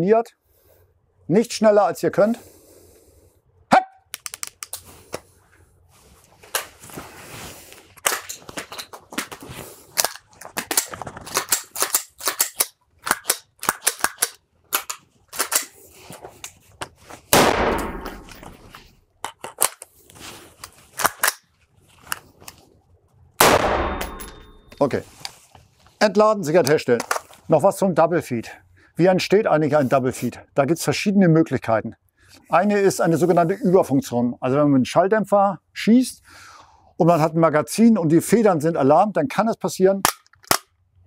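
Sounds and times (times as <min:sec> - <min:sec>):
rifle metallic clicks and clacks: 0:04.2 - 0:04.8, 0:10.0 - 0:15.8, 0:17.6 - 0:19.9, 0:40.0 - 0:40.8
rifle shot ringing indoors: 0:17.4 - 0:18.5, 0:23.4 - 0:24.6.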